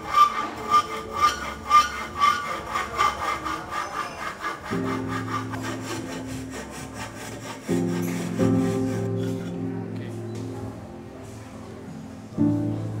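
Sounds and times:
hand file rasping on metal: 0.0 - 9.6.

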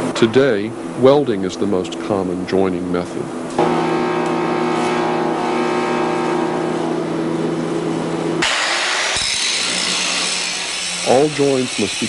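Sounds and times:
steady hum: 0.0 - 12.0
disc grinder grinding metal: 3.6 - 7.0, 8.4 - 12.0.

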